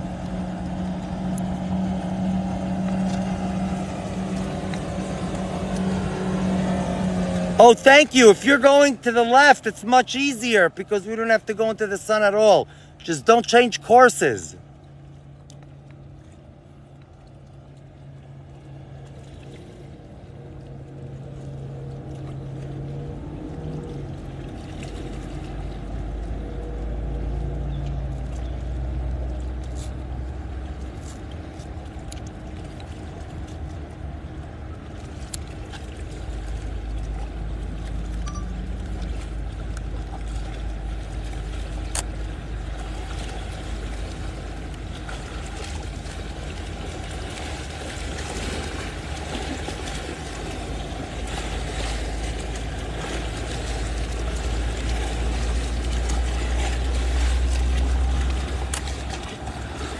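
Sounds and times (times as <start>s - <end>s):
motorboat engine hum: 0.0s - 59.9s.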